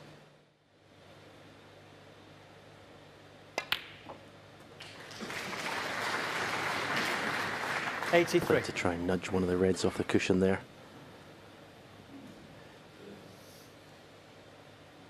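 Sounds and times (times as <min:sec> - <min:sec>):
audience applause: 0:04.8 - 0:09.3.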